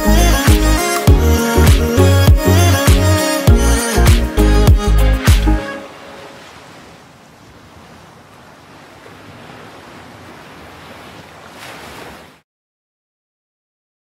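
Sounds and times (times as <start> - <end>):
waves hissing on seashore: 5.7 - 12.4.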